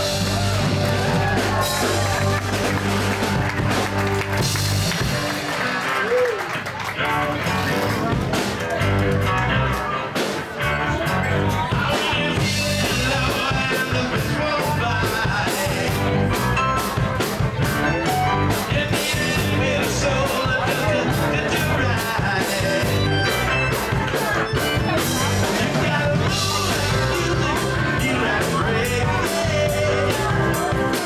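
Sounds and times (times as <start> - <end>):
rock band playing: 0.0 - 31.0
person singing: 9.6 - 31.0.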